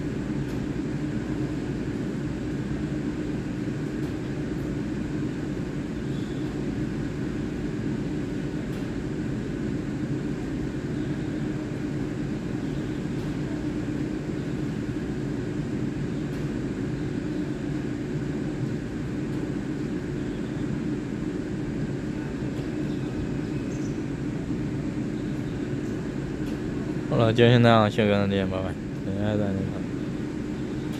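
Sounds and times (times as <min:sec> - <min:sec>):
train equipment humming: 0:00.0 - 0:30.9.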